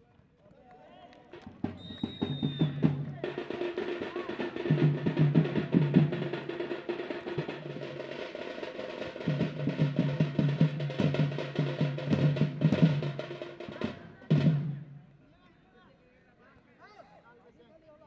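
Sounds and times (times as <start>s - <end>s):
drums beating fast rhythm: 1.4s - 15.0s.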